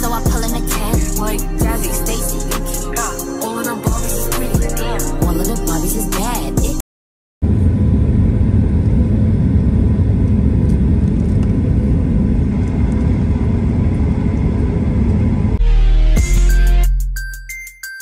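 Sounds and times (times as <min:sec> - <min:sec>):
music: 0:00.0 - 0:06.8, 0:15.6 - 0:18.0
loud low rumbling noise: 0:07.4 - 0:15.8.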